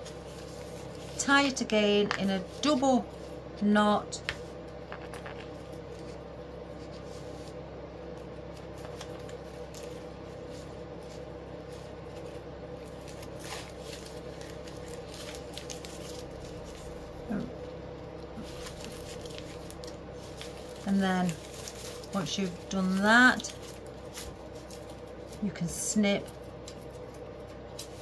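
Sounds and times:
steady background hum: 0.0 - 28.0
plastic ribbon crinkling: 8.4 - 17.5, 18.2 - 25.5.

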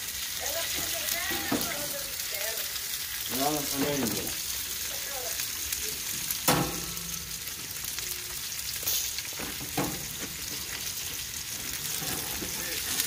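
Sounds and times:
fish sizzling: 0.0 - 13.0.

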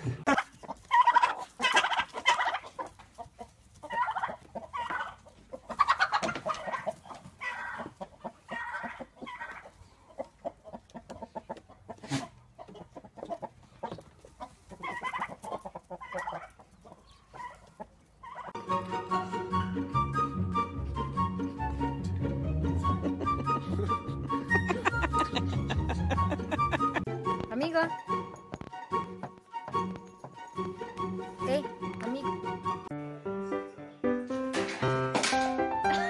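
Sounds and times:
chickens clucking: 0.0 - 19.2.

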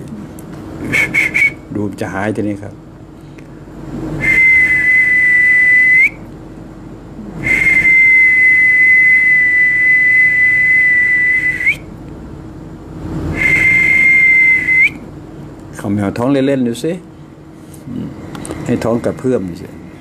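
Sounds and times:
man whistling high notes: 0.9 - 1.7, 4.2 - 6.2, 7.4 - 11.9, 13.3 - 15.0.

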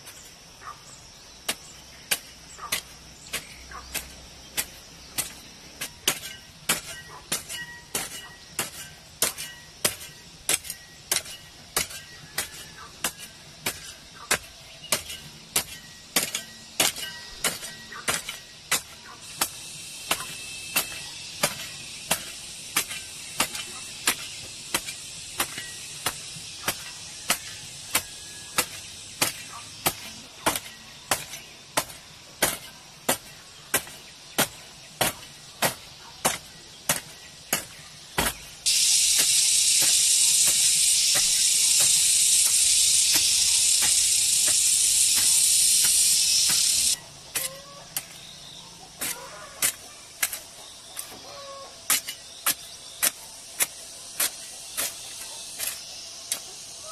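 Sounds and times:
hoe striking dry soil: 1.4 - 56.9
high hiss: 16.8 - 48.9, 50.5 - 56.9.

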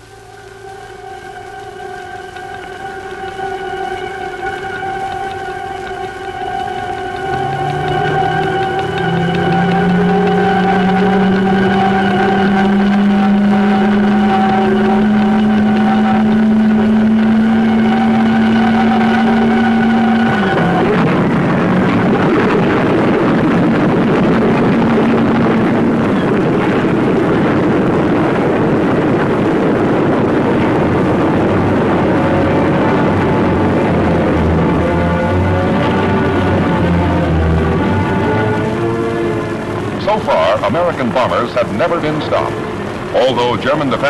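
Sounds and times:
engine starter whine: 0.0 - 44.0
radial engine running: 0.0 - 44.0.

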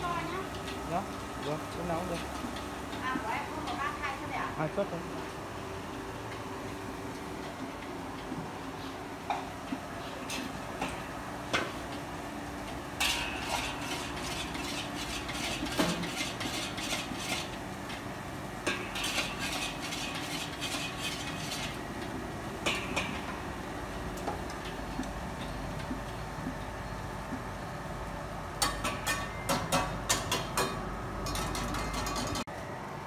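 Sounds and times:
metal ladle scraping a wok: 13.0 - 17.6, 18.7 - 21.8.

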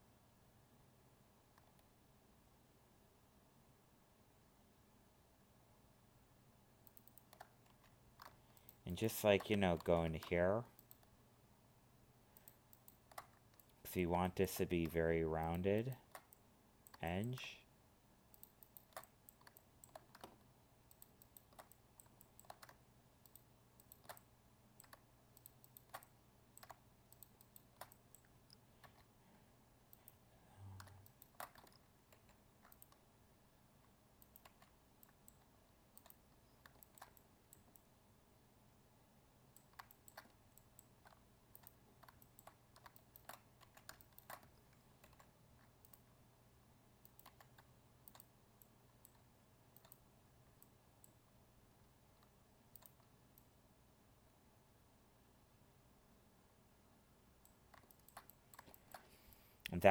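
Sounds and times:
keyboard and mouse clicks: 1.5 - 1.9, 6.8 - 11.1, 12.4 - 17.5, 18.3 - 29.1, 29.9 - 33.1, 33.8 - 37.9, 39.5 - 46.1, 47.0 - 53.5, 57.4 - 59.9.

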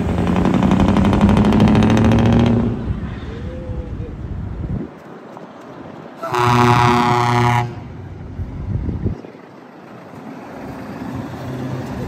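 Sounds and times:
road traffic noise: 0.0 - 12.0
truck engine: 0.0 - 12.0
truck air horn blast: 6.2 - 7.9.

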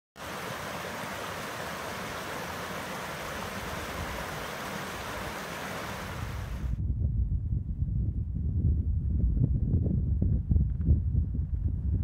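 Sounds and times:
stream rushing over rocks: 0.2 - 6.7.

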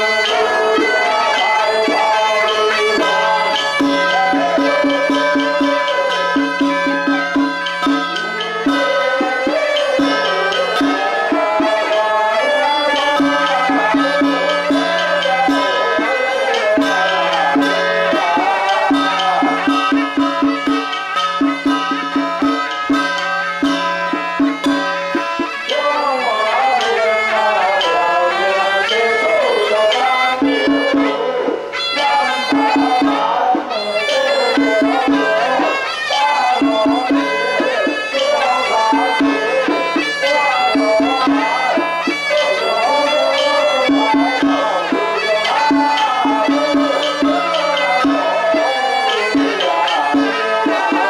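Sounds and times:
double-reed horns melody: 0.0 - 51.0
drum strokes: 0.0 - 51.0.

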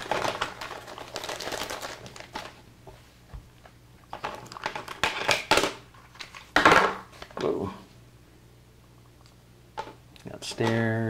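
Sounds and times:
plastic bag crinkling: 0.0 - 2.6, 4.1 - 6.4.

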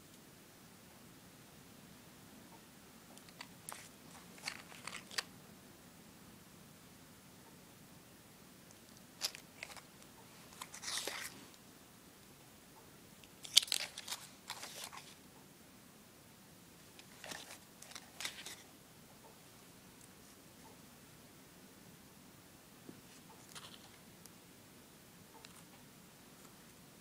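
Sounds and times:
cardboard tubes crinkling and knocking: 3.2 - 5.3, 9.2 - 9.9, 17.0 - 18.6.

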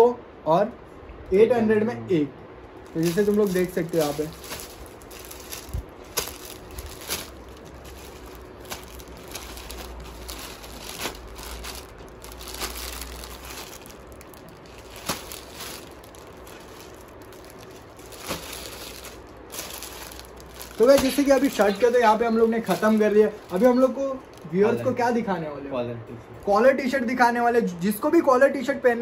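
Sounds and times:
packaging crinkling and rustling: 2.8 - 24.8.

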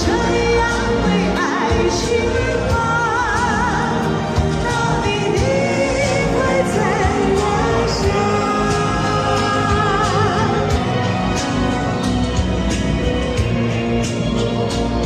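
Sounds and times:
woman singing into a microphone: 0.0 - 11.3.

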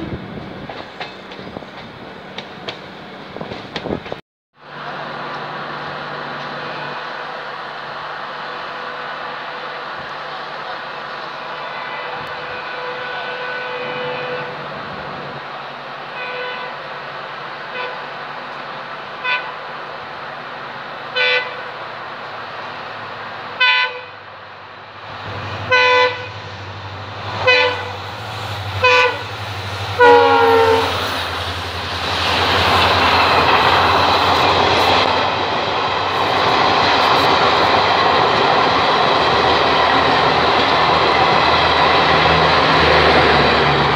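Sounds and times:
train coaches rushing past: 0.0 - 43.9
locomotive horn blasts: 6.6 - 7.1, 11.5 - 14.7, 16.1 - 16.8, 17.7 - 18.0, 19.2 - 19.6, 21.1 - 21.8, 23.6 - 24.2, 25.7 - 26.5, 27.4 - 28.0, 28.8 - 29.4, 30.0 - 31.1.

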